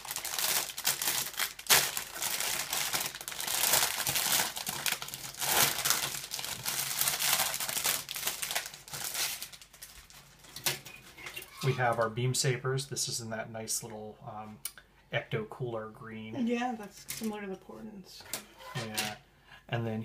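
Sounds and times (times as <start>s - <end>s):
plastic bag crinkling: 0.0s - 11.8s.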